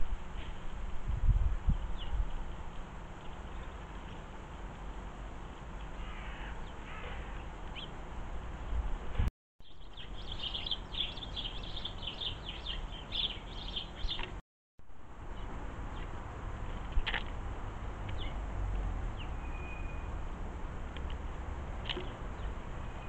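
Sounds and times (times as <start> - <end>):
small birds chirping: 5.7 - 8.0, 9.6 - 14.4, 18.1 - 18.4.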